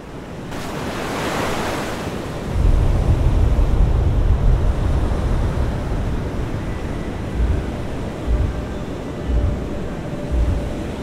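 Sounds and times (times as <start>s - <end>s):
ocean surf breaking on rocks: 0.0s - 8.4s
wind buffeting microphone: 2.2s - 11.0s.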